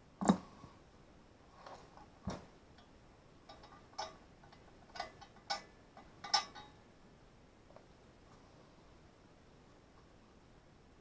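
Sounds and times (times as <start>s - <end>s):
metal brackets and wrench clinking: 3.5s - 6.8s.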